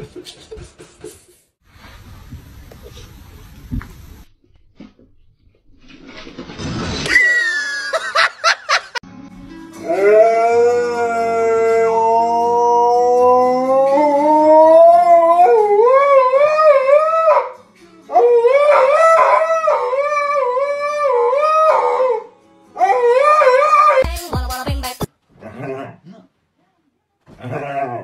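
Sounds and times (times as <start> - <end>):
dog howling: 9.8 - 24.0.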